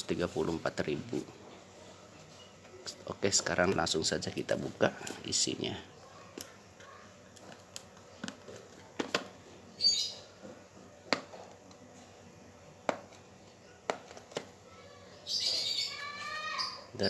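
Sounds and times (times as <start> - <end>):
high bird chirp: 9.8 - 10.3, 15.2 - 16.9.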